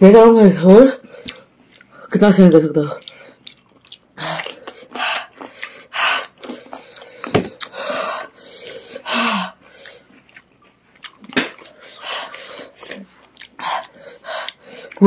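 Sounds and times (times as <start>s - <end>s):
sharp breaths through mouth: 4.7s - 10.0s.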